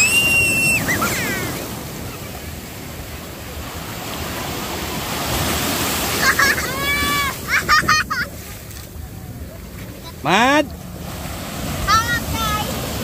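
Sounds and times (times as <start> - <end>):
child squealing: 0.0 - 1.7
child laughing: 0.0 - 2.4, 6.1 - 8.6
ocean surf washing in: 0.0 - 13.0.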